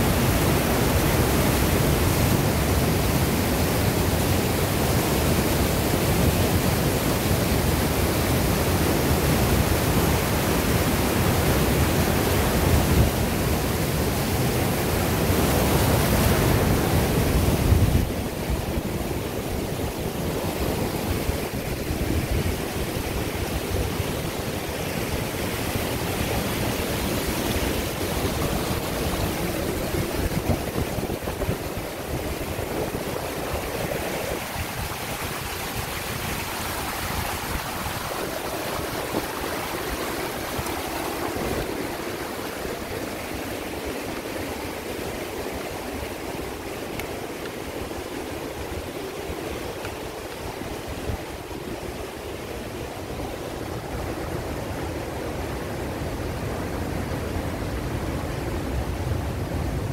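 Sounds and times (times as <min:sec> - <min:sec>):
stream rushing over waterfall: 0:00.0 - 0:59.9.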